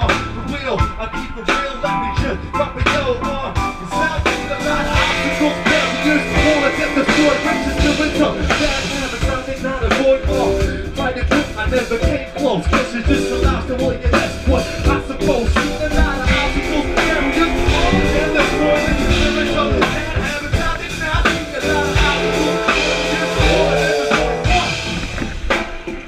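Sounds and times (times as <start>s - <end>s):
live hip hop band playing: 0.0s - 26.0s
drum-kit groove: 2.2s - 26.0s
person singing: 4.1s - 24.8s.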